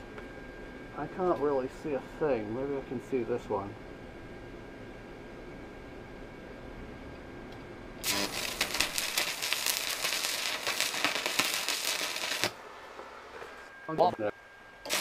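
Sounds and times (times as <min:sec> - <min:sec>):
welder humming: 0:07.2 - 0:15.0
welding arc crackling: 0:08.0 - 0:12.6.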